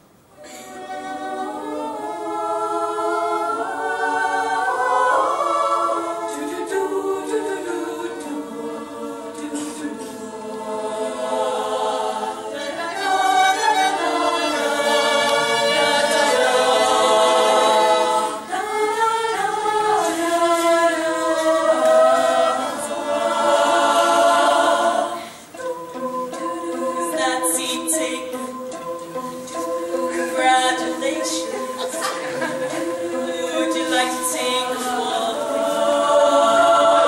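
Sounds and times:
women's choir singing: 0.3 - 37.0.

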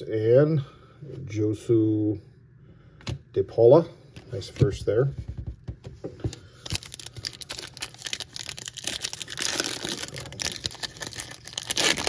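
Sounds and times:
wrapper tearing and crinkling: 6.5 - 12.0.

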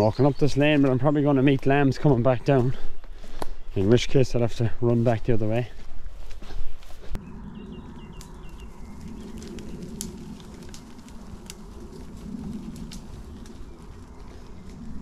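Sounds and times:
low outdoor rumble: 7.1 - 15.0.

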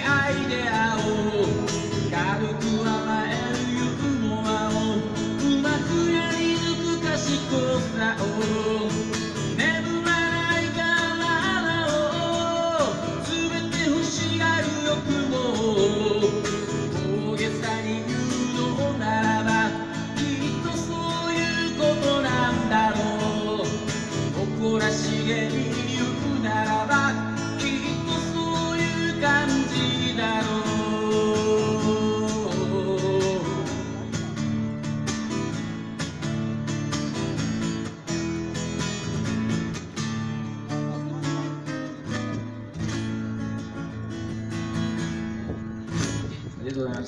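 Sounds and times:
man singing: 0.0 - 34.4
acoustic guitar: 0.0 - 47.0.

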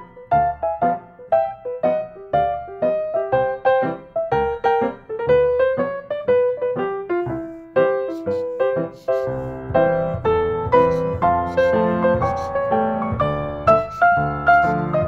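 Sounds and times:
gentle piano melody: 0.0 - 15.0.

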